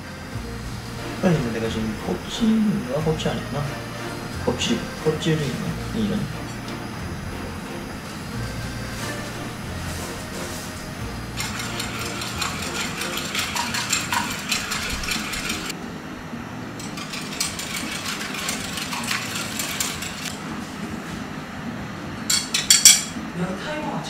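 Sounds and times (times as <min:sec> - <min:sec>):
whisk clicking against bowl: 0:11.4 - 0:15.7, 0:16.8 - 0:20.4.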